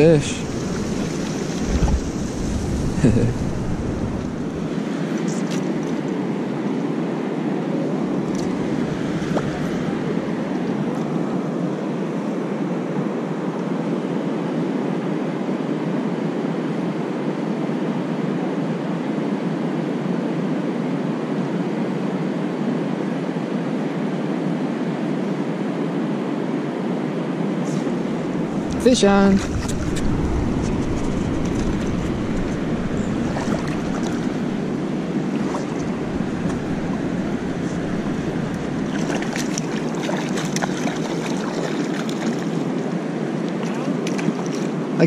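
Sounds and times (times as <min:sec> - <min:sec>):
river water flowing: 0:00.0 - 0:12.6, 0:27.7 - 0:45.0.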